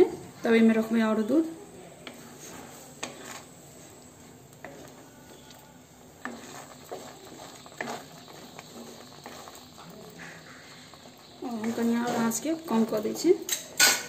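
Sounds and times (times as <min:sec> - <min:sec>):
faint steady sizzle: 0:00.0 - 0:14.0
spatula scraping metal pan: 0:02.1 - 0:03.6, 0:06.2 - 0:14.0.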